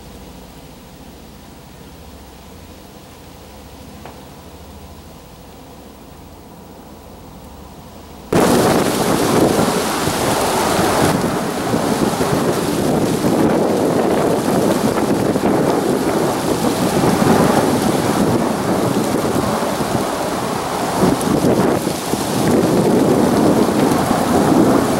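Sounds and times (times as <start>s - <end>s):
helicopter rotor rumble: 8.3s - 24.9s.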